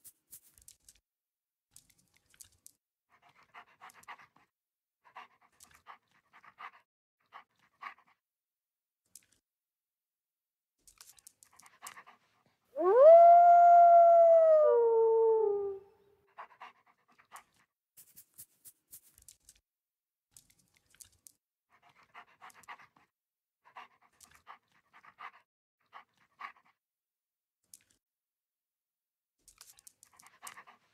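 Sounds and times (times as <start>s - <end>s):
quiet panting breaths: 3.2s - 8.3s, 11.5s - 12.7s, 16.3s - 17.7s, 21.7s - 26.9s, 30.0s - 30.9s
wolf howling: 12.8s - 15.9s.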